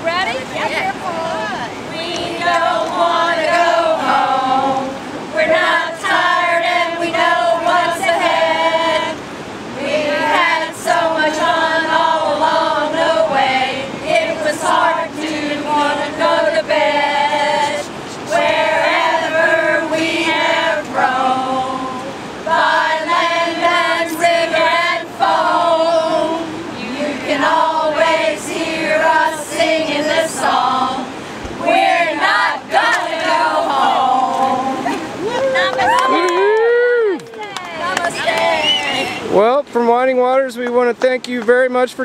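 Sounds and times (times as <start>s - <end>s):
women singing unaccompanied: 0.0s - 39.3s.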